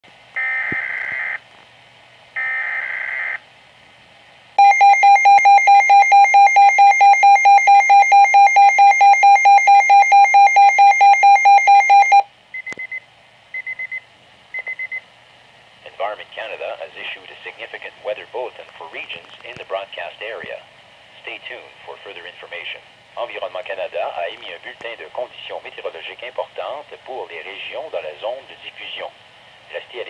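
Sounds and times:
alarm beeping rapidly: 4.6 - 12.2.

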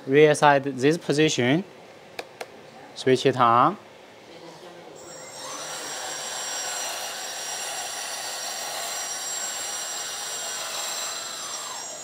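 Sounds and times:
toy excavator motor whining: 5.0 - 12.0.

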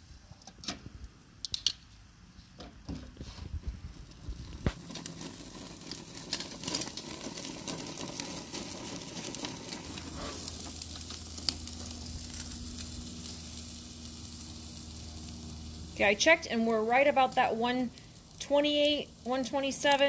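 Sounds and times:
steak sizzling: 3.8 - 20.0.

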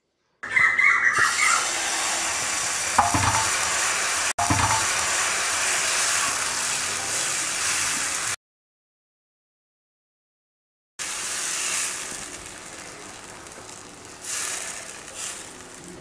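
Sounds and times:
batter sizzling on hot griddle: 1.2 - 8.4, 11.0 - 16.0.

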